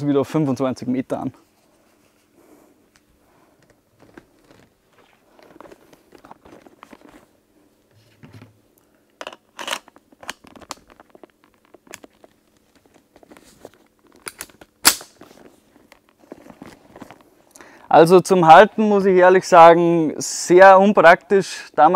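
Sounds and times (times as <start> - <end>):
leather creaks and rustles: 3.5 - 7.4, 9.6 - 14.3, 15.1 - 17.4.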